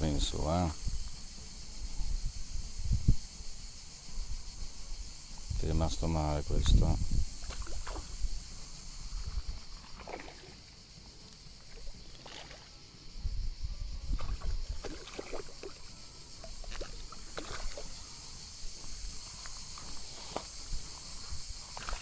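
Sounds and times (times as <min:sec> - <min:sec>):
wind rumble on microphone: 0:00.0 - 0:09.9, 0:13.1 - 0:15.0, 0:18.5 - 0:22.0
insects buzzing: 0:00.0 - 0:22.0.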